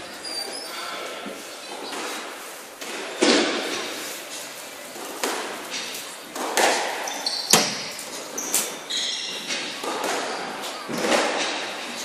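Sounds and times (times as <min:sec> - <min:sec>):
shoes squeaking on wooden floor: 0:07.0 - 0:09.8.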